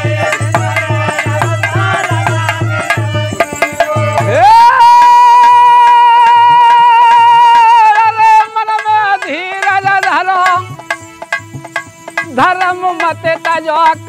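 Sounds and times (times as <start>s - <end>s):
man singing folk song: 0.0s - 10.9s, 12.2s - 14.0s
dholak drum strokes: 0.0s - 14.0s.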